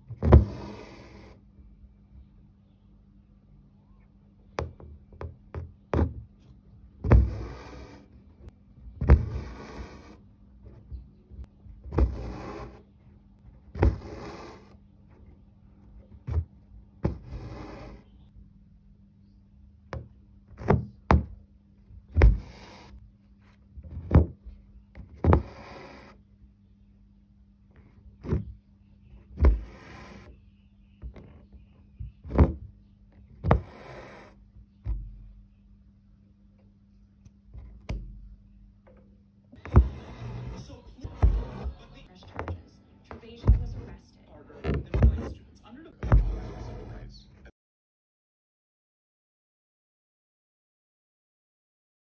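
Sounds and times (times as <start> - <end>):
faint low hum: 0.0 - 47.5
thread rasping through fabric: 29.3 - 30.4, 39.6 - 44.0
needle popping through fabric: 39.6 - 44.0.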